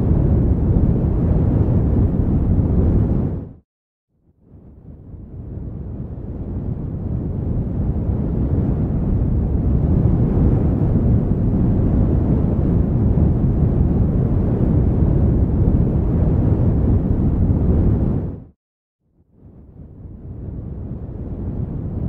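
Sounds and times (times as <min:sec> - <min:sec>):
low rumbling noise: 0:00.0 - 0:03.6.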